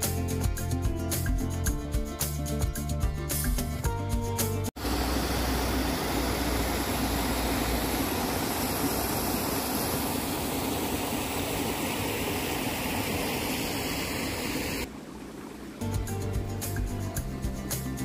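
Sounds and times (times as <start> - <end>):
stream water flowing: 4.7 - 17.9.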